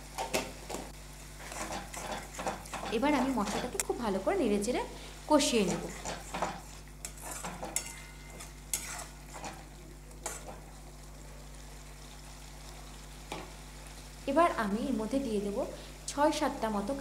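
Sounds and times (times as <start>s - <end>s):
light sizzle of frying: 0.0s - 17.0s
spatula scraping metal pan: 1.4s - 3.7s, 5.6s - 9.6s, 10.2s - 10.6s.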